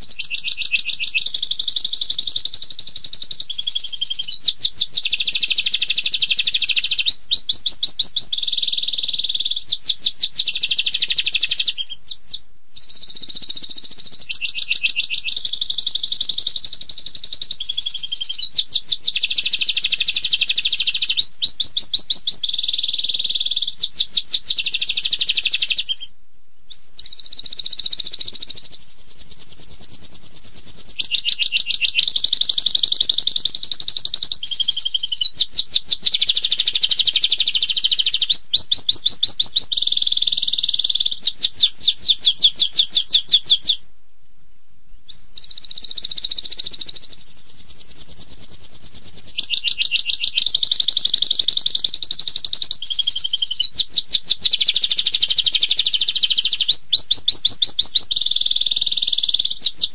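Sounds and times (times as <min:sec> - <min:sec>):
canary singing trills: 0:00.0 - 0:26.1, 0:26.7 - 0:43.9, 0:44.9 - 0:59.9.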